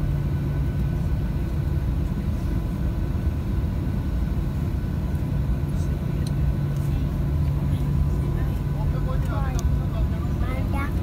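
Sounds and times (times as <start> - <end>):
constant low hum: 0.0 - 11.0
jet engines rumbling in cabin: 0.0 - 11.0.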